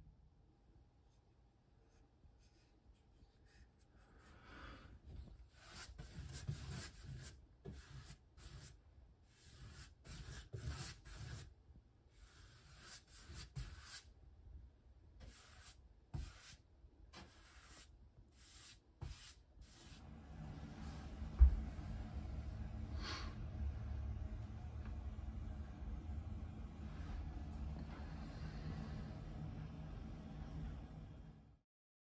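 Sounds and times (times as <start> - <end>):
paintbrush scratchy strokes: 5.4 - 11.5, 12.1 - 14.1, 15.2 - 16.6, 17.2 - 22.0.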